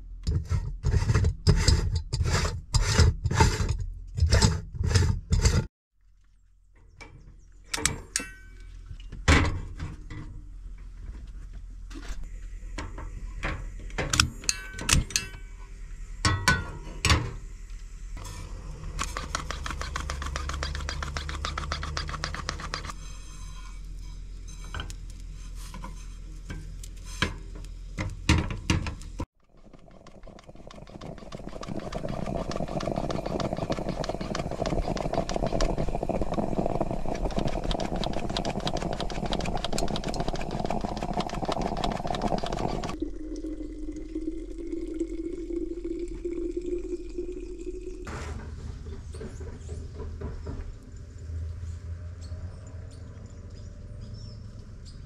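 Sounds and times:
gas stove hissing: 32.4 - 42.9.

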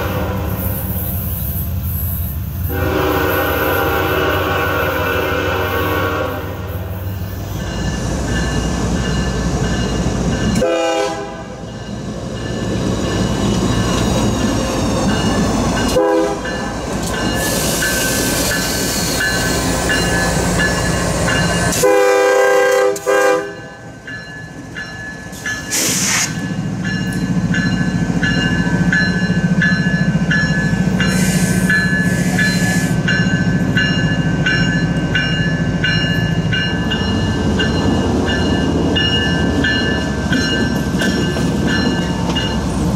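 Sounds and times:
locomotive horn blasts: 0.0 - 0.8, 2.7 - 6.8, 10.6 - 11.6, 15.9 - 16.5, 21.7 - 23.7.

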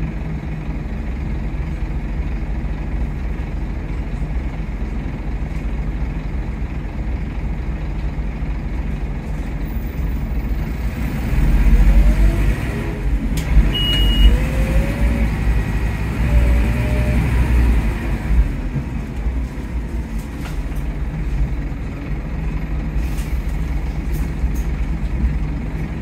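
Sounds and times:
bus engine and gearbox whine: 0.0 - 26.0
short high beep: 13.7 - 14.4.

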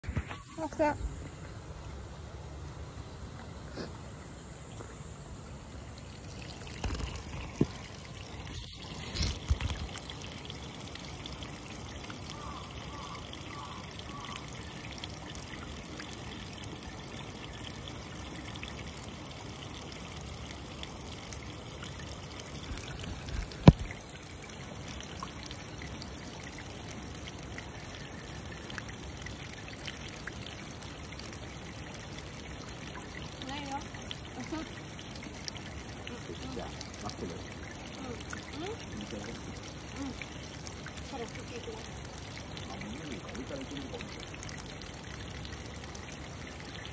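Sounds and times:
hot spring water rushing: 0.0 - 46.9.

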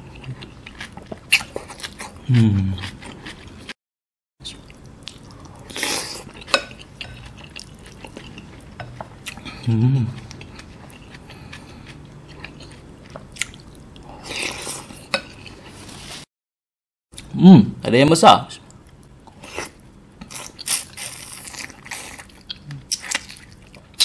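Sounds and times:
person humming: 2.2 - 2.8, 9.5 - 10.2
chewing and mouth noises: 4.4 - 15.7.

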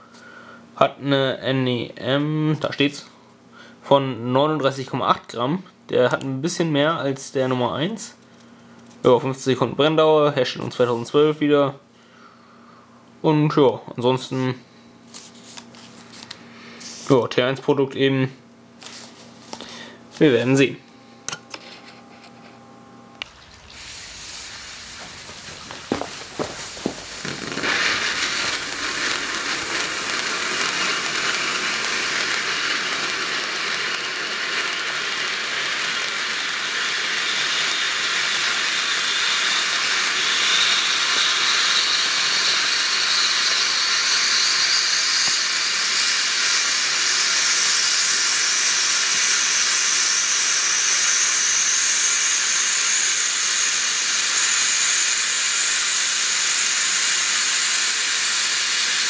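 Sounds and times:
firework fuse catching: 23.2 - 59.0
fountain firework hissing sparks: 23.2 - 59.0.

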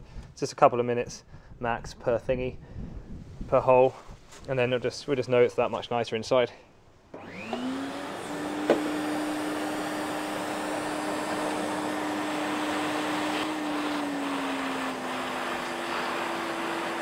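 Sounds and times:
vacuum cleaner running: 7.1 - 17.0.

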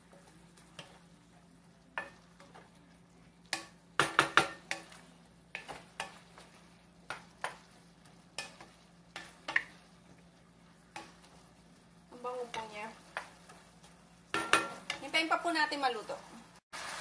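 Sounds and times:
meat sizzling: 0.0 - 17.0
spatula scraping frying pan: 3.4 - 15.5.

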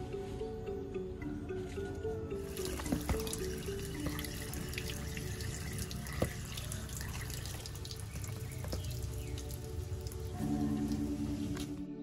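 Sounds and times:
tap water splashing into basket: 2.5 - 10.4.

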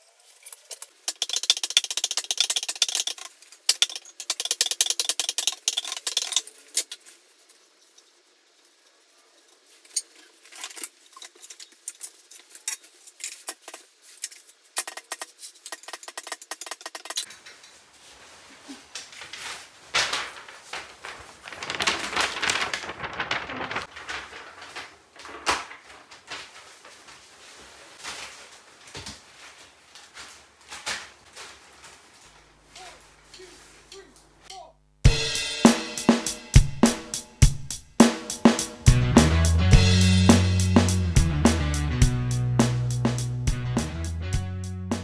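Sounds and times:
paper sheet rustling: 0.0 - 33.9
metal clamps clicking and clattering: 0.3 - 7.0, 9.8 - 17.6.

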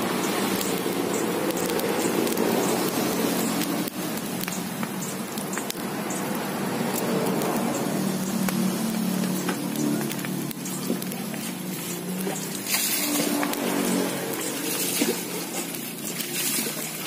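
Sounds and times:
fire crackling hiss: 0.0 - 17.0
sharp pops from fire: 0.0 - 17.0.

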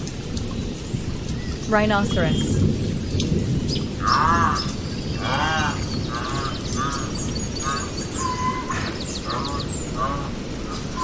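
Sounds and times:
birds chirping: 0.4 - 11.0.

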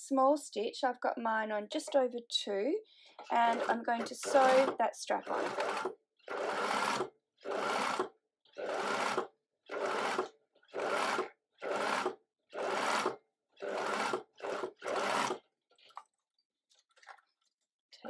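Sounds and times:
electric sewing machine stitching: 3.2 - 15.5.

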